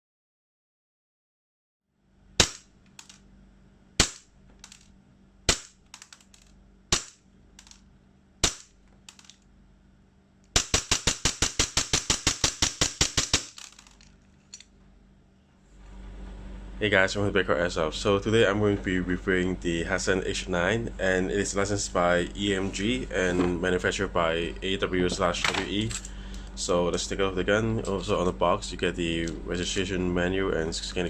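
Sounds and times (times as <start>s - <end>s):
airsoft pistol shots: 2.4s - 2.7s, 4.0s - 4.3s, 5.5s - 6.0s, 6.9s - 7.2s, 8.4s - 8.8s, 10.6s - 13.7s.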